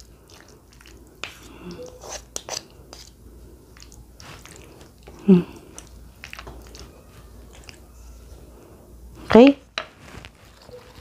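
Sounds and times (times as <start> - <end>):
person humming: 5.2 - 5.6.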